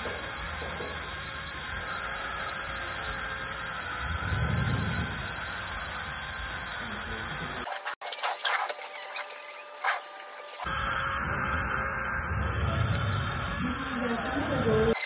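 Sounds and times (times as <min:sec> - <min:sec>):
low rumble: 0:04.0 - 0:05.5, 0:11.2 - 0:14.8.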